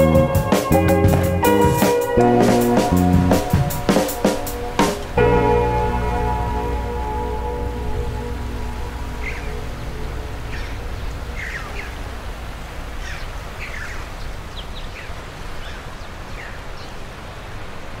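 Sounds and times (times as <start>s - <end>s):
low outdoor ambience rush: 0.0s - 18.0s
birds calling: 7.2s - 17.6s.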